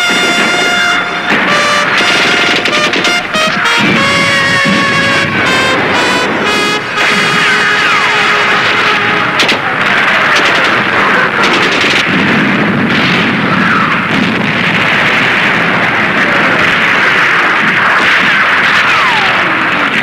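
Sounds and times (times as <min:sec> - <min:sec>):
explosions: 0:00.0 - 0:20.0
gunfire: 0:00.0 - 0:20.0
rapid gunshots: 0:00.0 - 0:20.0.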